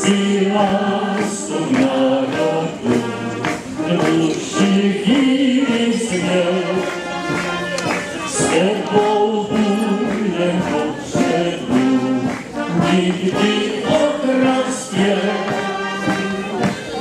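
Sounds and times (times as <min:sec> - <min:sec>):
brass band playing a hymn: 0:00.0 - 0:17.0
voices singing: 0:00.0 - 0:17.0.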